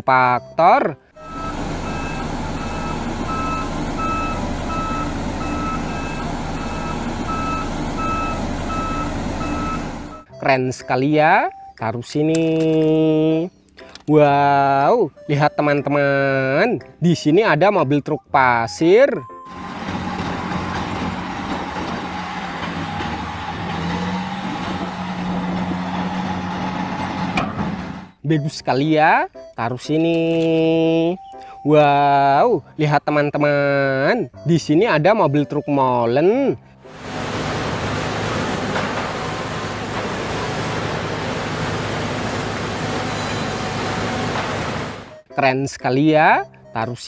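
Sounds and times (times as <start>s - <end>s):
diesel truck engine running: 1.2s - 10.4s, 19.5s - 28.2s, 36.7s - 45.3s.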